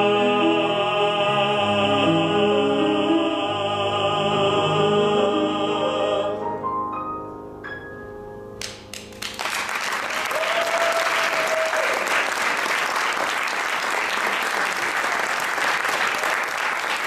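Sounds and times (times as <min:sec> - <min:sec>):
audience applauding: 0:08.6 - 0:17.0.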